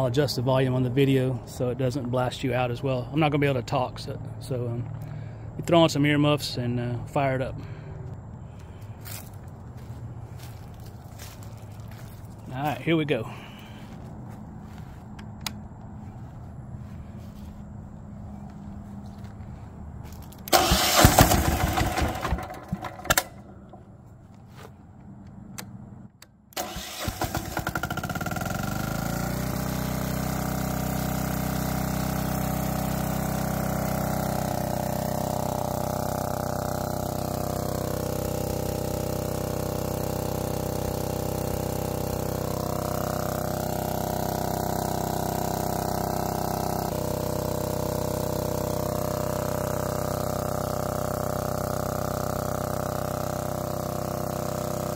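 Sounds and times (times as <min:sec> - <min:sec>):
diesel generator engine running: 0:00.0 - 0:54.9
electric starter cranking: 0:20.3 - 0:23.8, 0:26.5 - 0:54.9.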